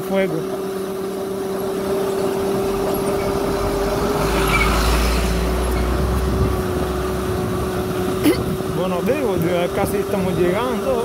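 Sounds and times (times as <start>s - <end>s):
electric motor hum: 0.0s - 11.0s
road and wind noise: 0.0s - 11.0s
truck engine rumble: 0.0s - 11.0s.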